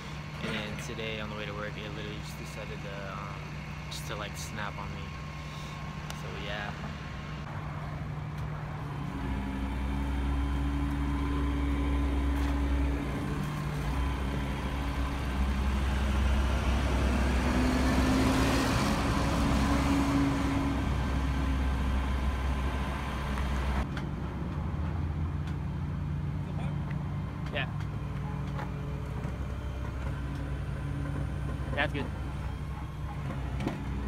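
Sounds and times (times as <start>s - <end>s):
truck engine running: 0.0s - 34.0s.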